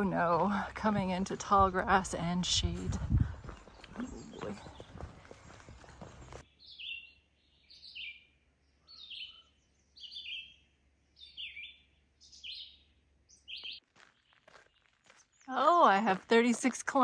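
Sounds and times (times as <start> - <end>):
songbird calling: 3.5 - 14.6.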